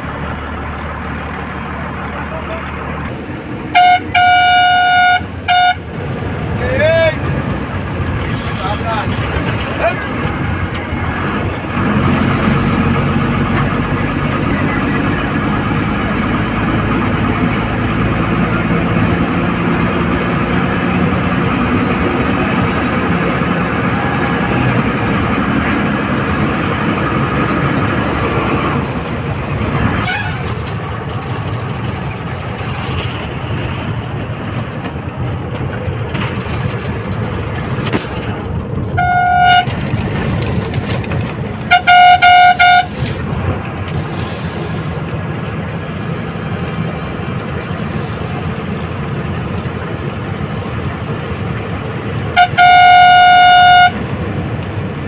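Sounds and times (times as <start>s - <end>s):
bus diesel engine running: 0.0s - 55.0s
bus horn: 3.7s - 6.0s, 23.8s - 25.9s, 29.9s - 30.6s, 38.9s - 39.8s, 41.6s - 43.2s, 52.3s - 54.1s.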